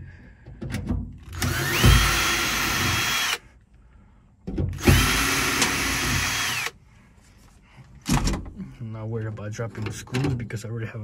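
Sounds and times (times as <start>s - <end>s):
power drill whining: 1.3s - 3.4s, 4.8s - 6.8s.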